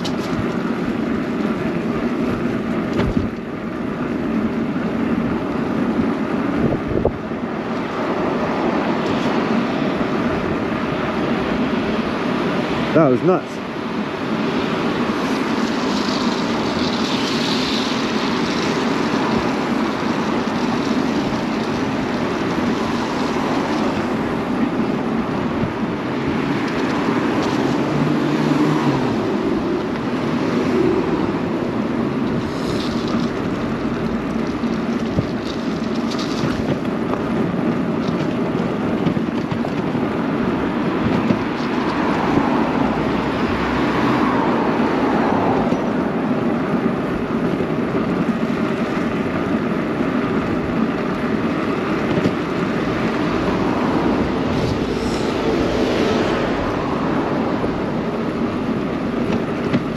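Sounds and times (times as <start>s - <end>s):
bicycle road noise: 0.0s - 59.9s
traffic: 0.0s - 59.9s
wind rushing: 40.0s - 46.4s, 52.4s - 59.2s.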